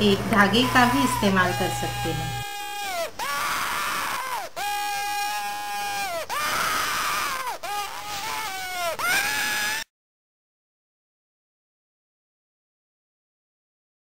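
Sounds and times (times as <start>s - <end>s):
paper reed whistle wailing: 0.4s - 9.8s.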